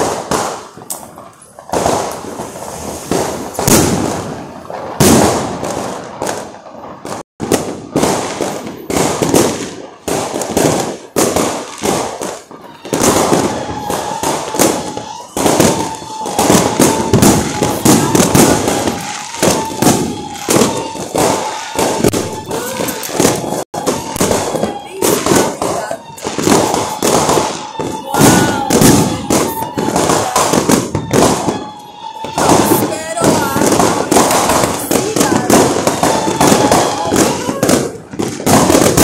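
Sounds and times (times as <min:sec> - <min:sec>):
fireworks bangs: 0:00.0 - 0:39.0.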